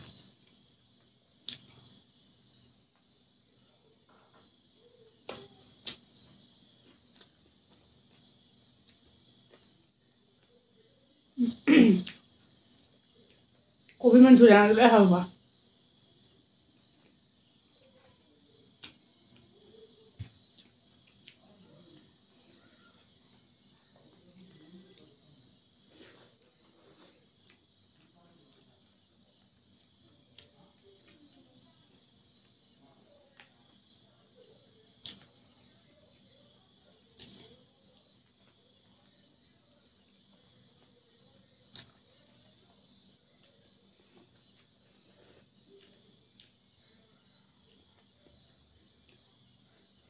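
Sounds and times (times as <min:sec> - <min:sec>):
soft eating clicks and smacks: 0:00.0 - 0:02.0, 0:05.2 - 0:10.7, 0:12.0 - 0:14.0, 0:16.8 - 0:28.8, 0:29.4 - 0:34.0, 0:34.9 - 0:50.0
chewing: 0:20.2 - 0:23.4, 0:43.4 - 0:46.7.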